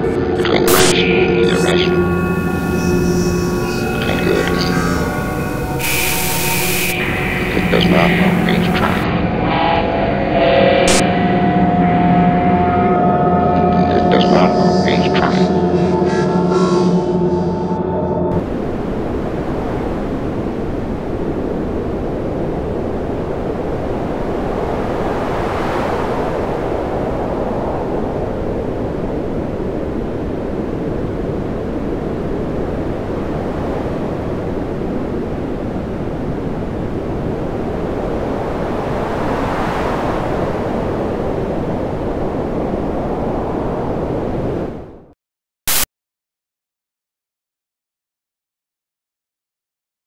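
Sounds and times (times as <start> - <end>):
steady rushing noise: 0.0 - 12.7, 18.3 - 44.8
loud rushing noise: 0.5 - 12.7.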